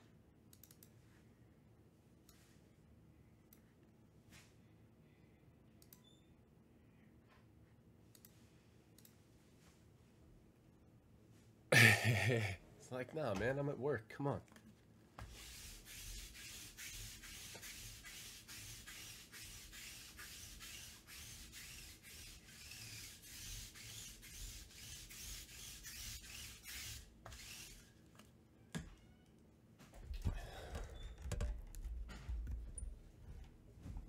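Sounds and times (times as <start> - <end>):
click: 0.5 - 0.9, 5.8 - 6.2, 8.1 - 8.4, 9.0 - 9.2
lint roller rasping on cloth: 15.2 - 27.9.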